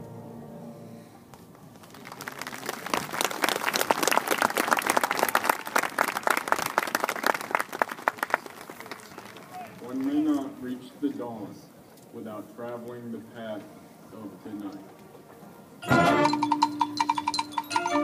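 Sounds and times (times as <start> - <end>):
audience applause: 1.7 - 10.2
marching band chord: 15.8 - 18.0.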